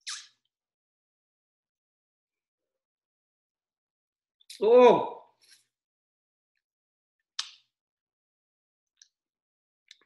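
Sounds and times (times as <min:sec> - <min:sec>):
man exclaiming: 0:04.6 - 0:05.2.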